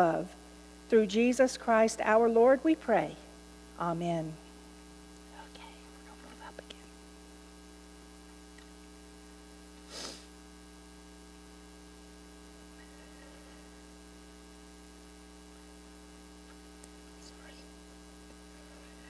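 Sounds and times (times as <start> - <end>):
electrical mains hum: 0.0 - 19.0
short hissing noise: 9.8 - 10.4.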